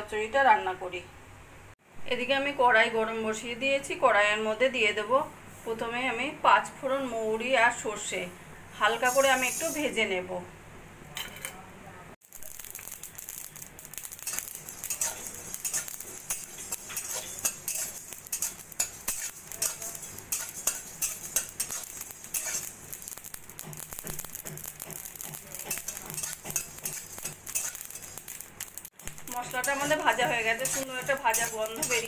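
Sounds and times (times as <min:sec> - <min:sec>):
seeds skittering in hot pan: 0:08.9 - 0:10.0, 0:12.2 - 0:32.0
metal spatula scraping pan: 0:14.2 - 0:23.1, 0:23.7 - 0:28.4, 0:29.4 - 0:32.0.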